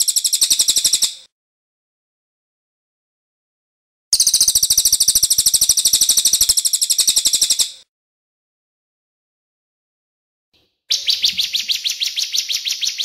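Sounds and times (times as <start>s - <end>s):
songbird trilling: 4.2s - 7.8s, 10.9s - 13.0s.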